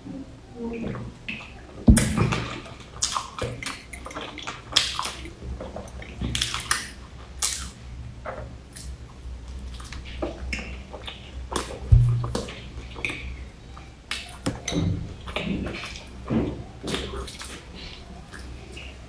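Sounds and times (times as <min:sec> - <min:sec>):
wet mouth eating sounds: 0:01.3 - 0:07.9, 0:08.6 - 0:19.0
sharp thump: 0:11.9 - 0:12.4.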